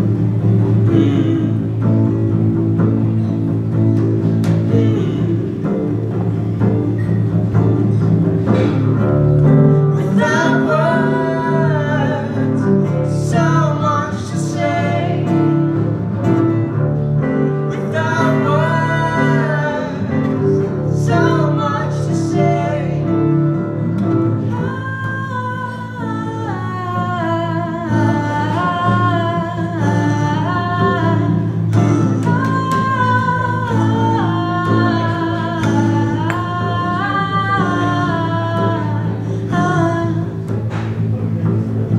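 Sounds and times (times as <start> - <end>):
double bass long low notes: 0.0 - 41.9
strummed acoustic guitar: 0.0 - 41.9
man singing second voice: 0.8 - 1.9, 17.7 - 23.2
woman singing: 9.8 - 15.9, 17.6 - 23.7, 24.4 - 40.6.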